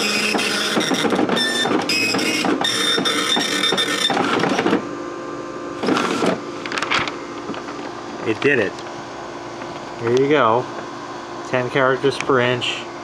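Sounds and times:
dot matrix printer buzzing: 0:00.0 - 0:04.9, 0:05.8 - 0:07.2.

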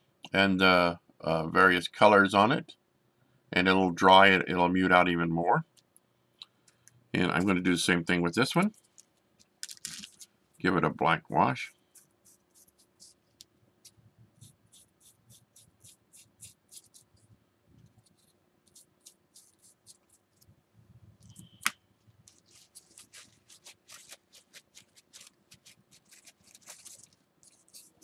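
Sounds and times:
paintbrush dabbing and scratching: 0:11.8 - 0:20.5, 0:21.1 - 0:28.0
paper napkin crumpling: 0:22.2 - 0:28.0.

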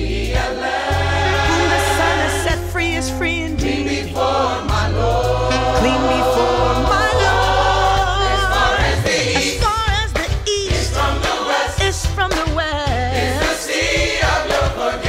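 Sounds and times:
choir singing: 0:00.0 - 0:10.0, 0:10.7 - 0:11.8, 0:13.1 - 0:15.0
band with bass line: 0:00.0 - 0:15.0
saxophone melody: 0:05.4 - 0:08.6.

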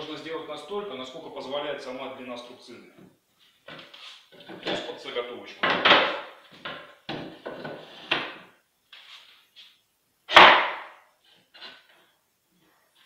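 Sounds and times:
sharp wooden knock: 0:05.6 - 0:07.5, 0:10.3 - 0:11.0.

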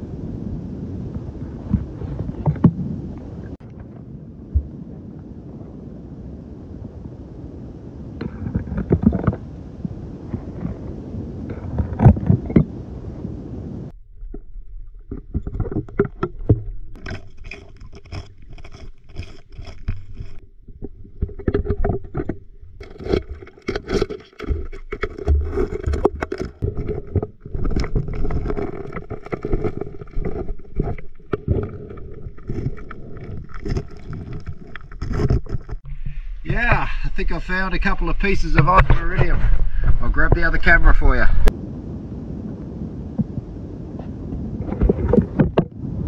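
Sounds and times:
stones scraping and clattering: 0:08.2 - 0:09.4, 0:14.2 - 0:35.9
water sloshing: 0:14.0 - 0:37.4.

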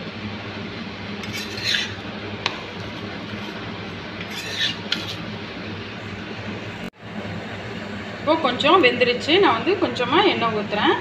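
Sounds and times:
utensil scraping iron griddle: 0:01.2 - 0:05.3.

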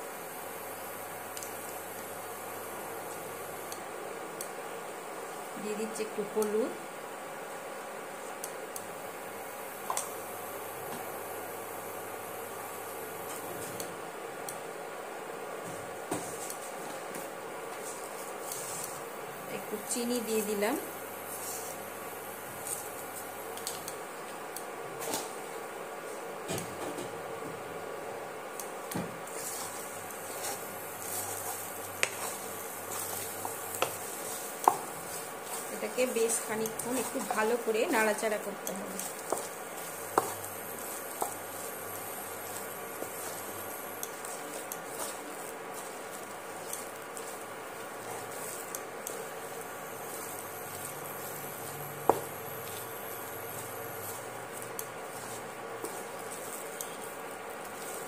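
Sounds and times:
batter squelching: 0:29.2 - 0:58.0
wooden spatula scraping paste in pan: 0:29.3 - 0:58.0.

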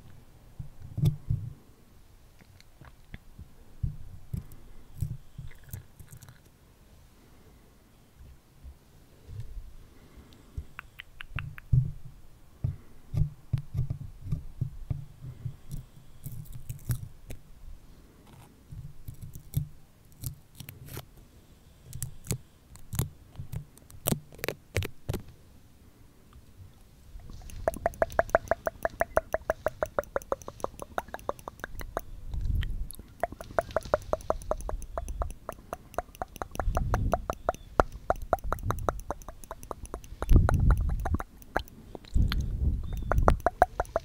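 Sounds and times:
sharp clicks: 0:10.7 - 0:11.8, 0:27.2 - 0:44.0
sticker peeling crackles: 0:21.9 - 0:25.3
stickers tapping on microphone: 0:27.2 - 0:32.6, 0:33.2 - 0:44.0.

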